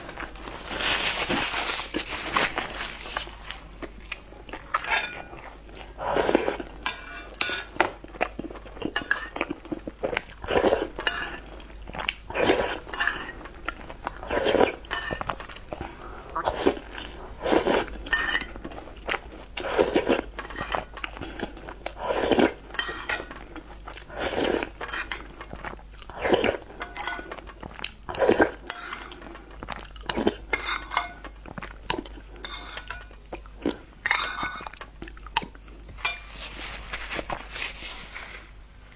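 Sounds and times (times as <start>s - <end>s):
slurping and chewing: 0.0s - 38.6s
metal spoon clinking on bowl: 4.8s - 5.3s, 26.8s - 27.4s, 30.5s - 31.3s, 32.4s - 33.2s.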